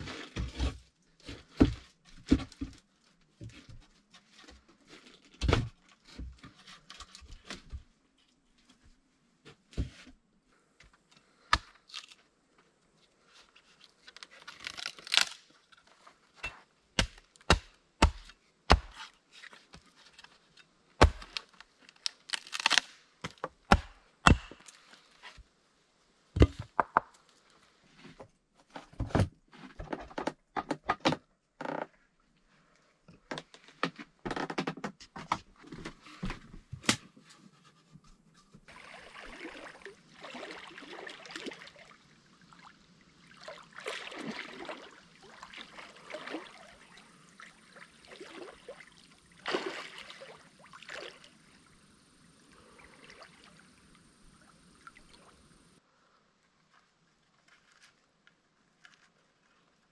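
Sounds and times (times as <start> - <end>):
wood cracking and tearing: 14.0 - 15.4, 21.0 - 23.4
hatchet splitting wooden log: 17.0 - 19.1, 21.0 - 21.5, 22.3 - 24.7.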